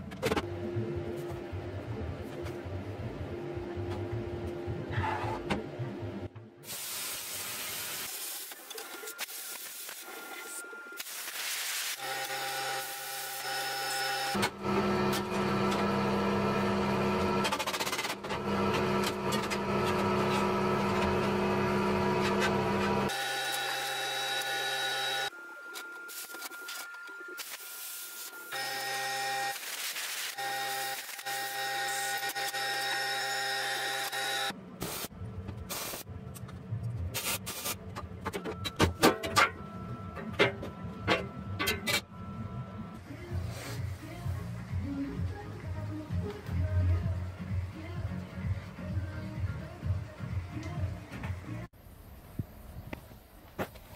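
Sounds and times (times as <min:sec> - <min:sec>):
background music with bass line: 0:43.0 - 0:51.7.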